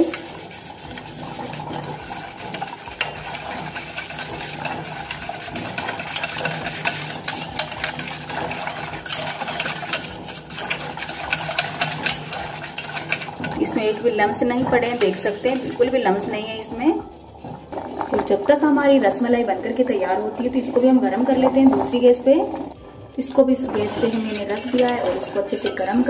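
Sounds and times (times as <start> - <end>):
wire whisk clicking in steel bowl: 3.0 - 3.2, 5.0 - 8.2, 9.0 - 13.9, 23.8 - 26.0.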